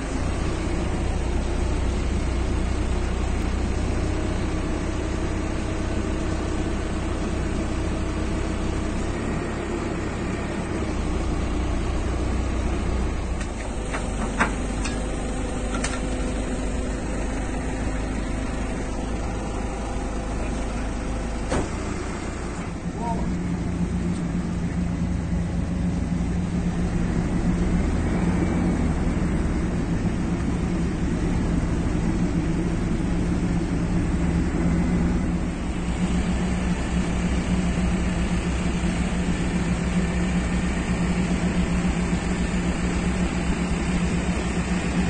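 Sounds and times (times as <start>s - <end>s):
hydraulic boom working: 0.0s - 24.7s
diesel truck engine running: 0.0s - 45.0s.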